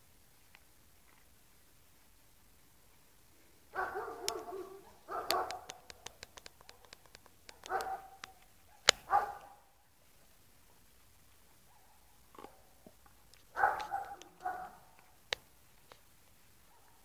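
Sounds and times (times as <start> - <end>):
teeth clicking on bone: 5.2 - 9.0.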